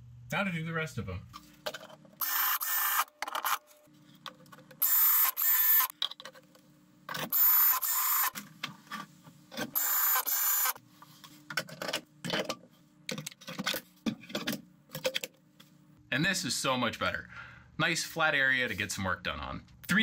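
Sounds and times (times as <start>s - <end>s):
cordless drill whirring: 2.2s - 3.6s, 4.8s - 5.9s, 7.3s - 8.4s, 9.8s - 10.8s.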